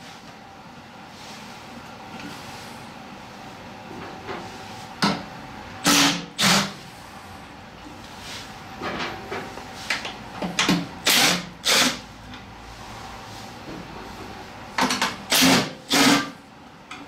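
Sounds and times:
impact driver running in bursts: 5.8s - 6.7s, 11.0s - 12.0s, 15.3s - 16.3s.

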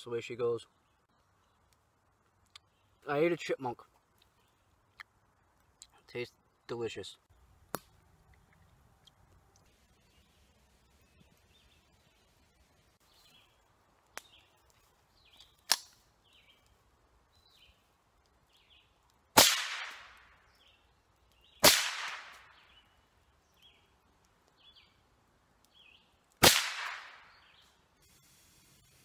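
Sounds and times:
bird chirping: 9.6s - 19.0s, 20.4s - 21.7s, 22.5s - 25.1s, 25.7s - 26.2s, 27.2s - 29.0s
rifle shots with echo: 19.4s - 20.2s, 21.6s - 22.5s, 26.4s - 27.3s.

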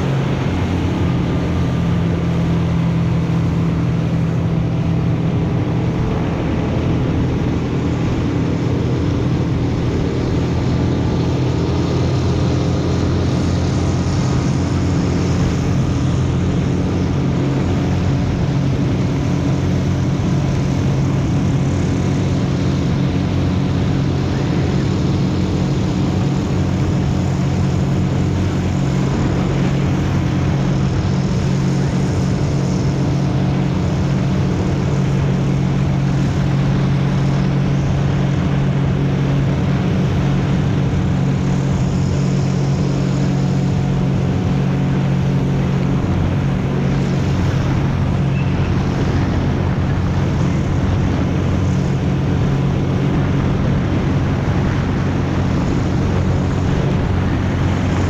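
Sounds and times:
motorboat engine drone: 0.0s - 58.0s.

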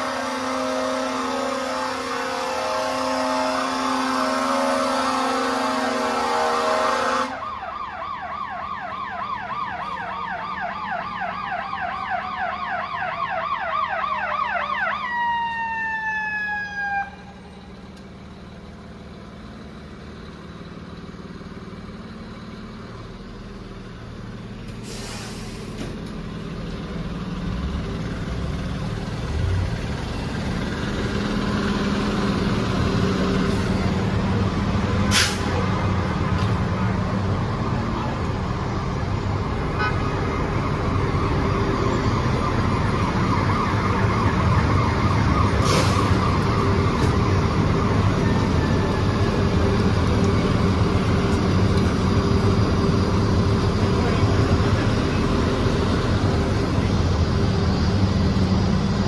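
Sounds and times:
fire truck siren yelp and wail: 0.0s - 59.0s
truck engine running: 17.0s - 59.0s.

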